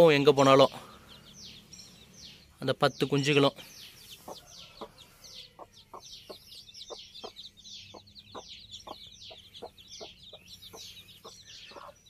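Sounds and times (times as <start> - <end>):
chicks peeping: 0.0 - 12.0
hen clucking: 2.6 - 12.0.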